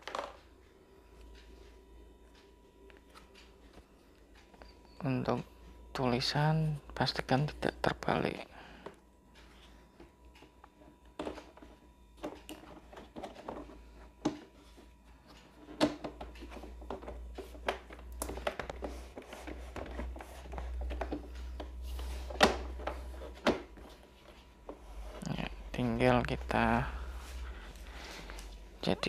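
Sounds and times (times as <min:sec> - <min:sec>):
plastic panels clicking and knocking: 0:15.6 - 0:21.7.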